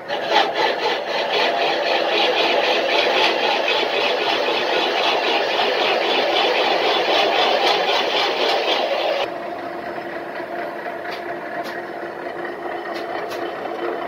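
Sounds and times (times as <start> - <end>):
boring machine rattling: 0.0 - 9.3, 9.9 - 14.0.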